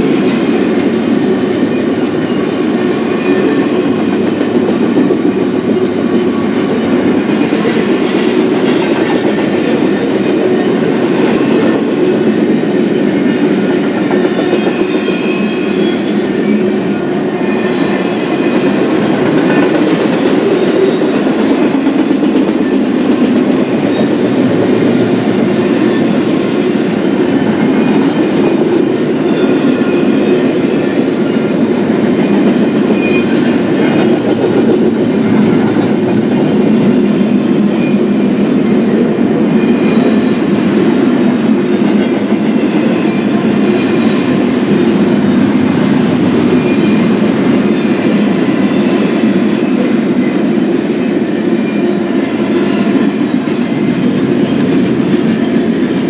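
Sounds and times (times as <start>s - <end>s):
freight train wheels rumbling: 0.0s - 56.0s.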